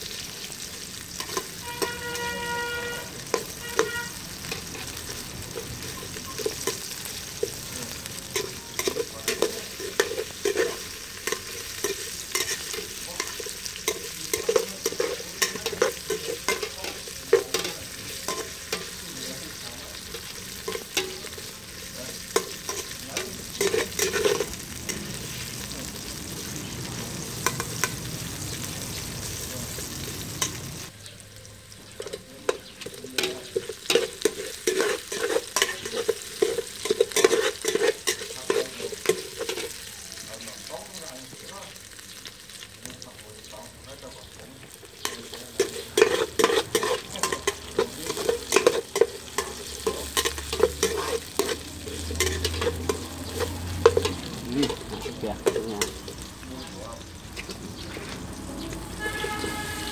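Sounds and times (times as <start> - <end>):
aromatics sizzling in oil: 0.0 - 59.9
metal ladle scraping a pot: 8.4 - 19.0, 33.2 - 39.7, 45.2 - 56.3.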